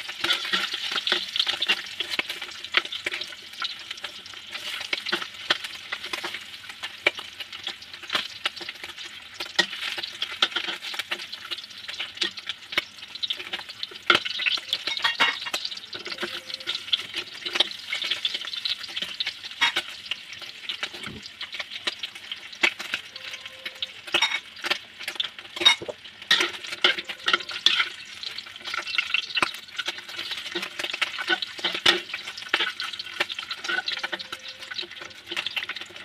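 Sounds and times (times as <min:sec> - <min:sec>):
utensils scraping a wok: 0:00.0 - 0:03.4, 0:25.4 - 0:36.0
ribs sizzling in hot oil: 0:00.0 - 0:36.0.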